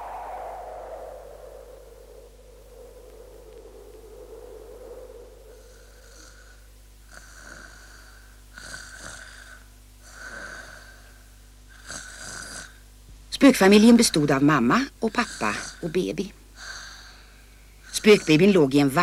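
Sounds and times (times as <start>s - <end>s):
cartoon snoring: 11.7s - 12.8s.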